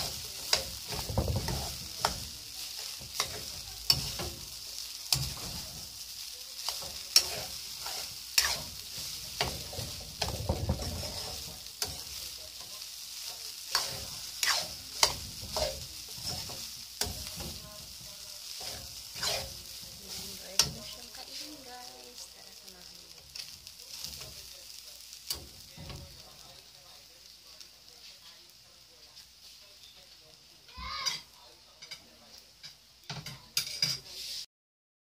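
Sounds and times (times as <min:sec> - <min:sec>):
rice sizzling in oil: 0:00.0 - 0:34.5
metal ladle scraping a wok: 0:06.7 - 0:12.2, 0:13.3 - 0:21.6.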